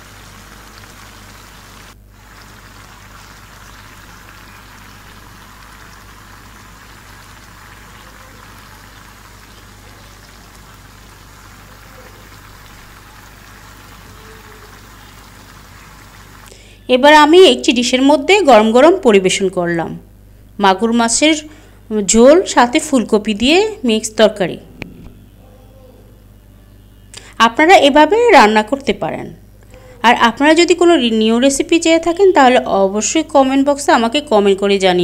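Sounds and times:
curry bubbling in a pan: 0.0 - 16.5.

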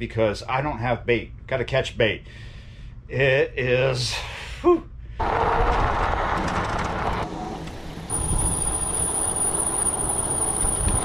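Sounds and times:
high-pitched whine: 8.1 - 11.0.

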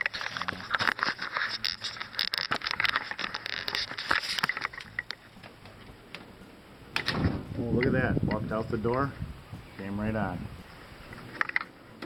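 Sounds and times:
camera handling noise: 0.0 - 5.2.

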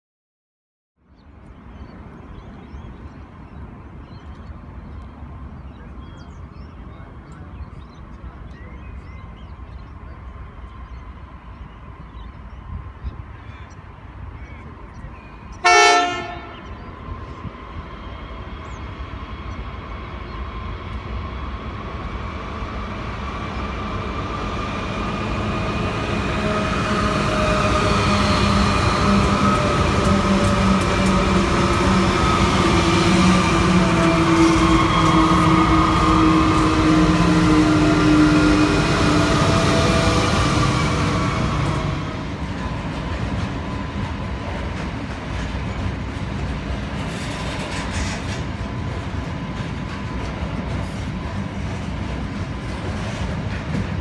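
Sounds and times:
diesel locomotive engines: 1.0 - 54.0
low train rumble: 1.0 - 54.0
small birds chirping: 1.1 - 15.6.

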